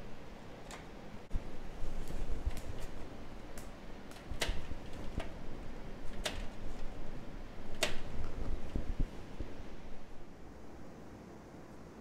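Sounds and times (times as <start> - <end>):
cable rustling: 1.7 - 9.5.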